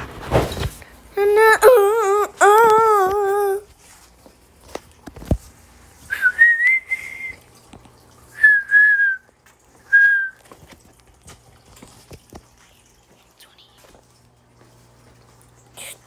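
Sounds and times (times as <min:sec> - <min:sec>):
person whistling short notes: 0:06.1 - 0:07.4, 0:08.4 - 0:09.3, 0:09.9 - 0:10.4.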